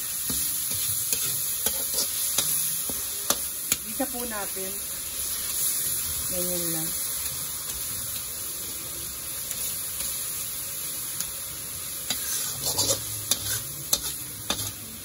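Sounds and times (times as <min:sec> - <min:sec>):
food sizzling in oil: 0:00.0 - 0:15.0
metal spatula scraping wok: 0:00.2 - 0:04.6, 0:12.0 - 0:15.0.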